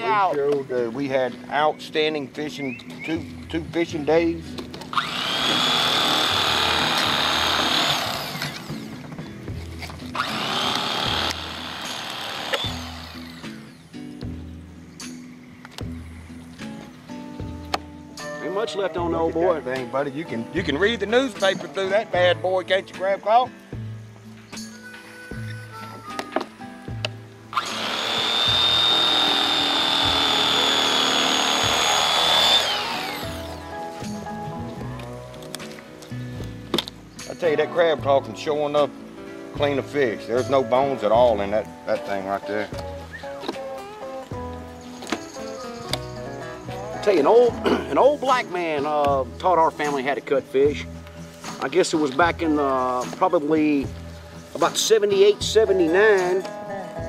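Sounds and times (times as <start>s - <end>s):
electric knife motor whine: 4.9s - 8.9s, 10.2s - 13.8s, 27.5s - 33.7s.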